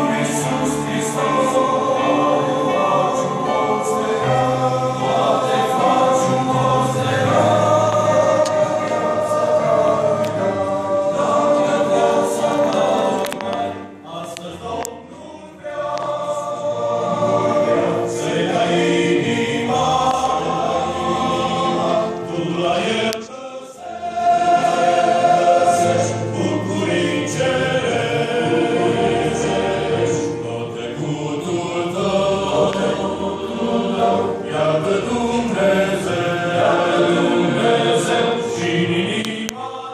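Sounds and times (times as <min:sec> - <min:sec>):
choir singing a hymn: 0:00.0 - 0:39.9.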